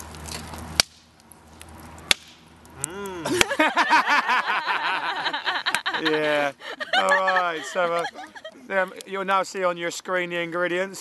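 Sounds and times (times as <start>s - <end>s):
campfire crackling and popping: 0.0s - 11.0s
men laughing: 3.0s - 9.1s.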